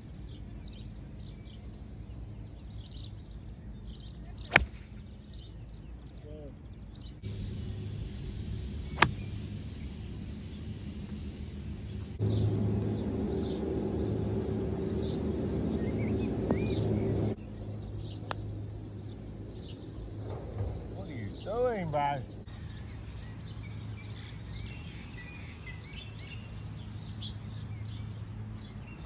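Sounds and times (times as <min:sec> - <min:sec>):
birds chirping: 0:00.0 - 0:29.0
low steady hum: 0:00.0 - 0:29.0
golf club striking ball: 0:04.4 - 0:05.0, 0:08.9 - 0:09.5.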